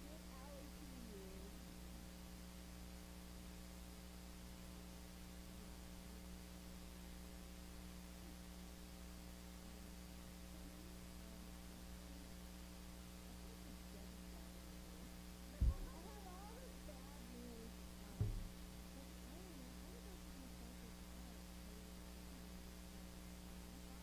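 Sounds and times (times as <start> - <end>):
electrical mains hum: 0.0 - 24.0
faint voices: 13.2 - 22.4.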